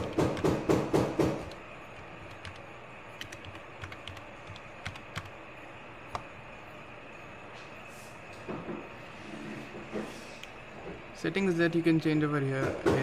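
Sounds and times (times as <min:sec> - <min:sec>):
keyboard typing clicks: 0:01.4 - 0:02.6, 0:03.2 - 0:05.3.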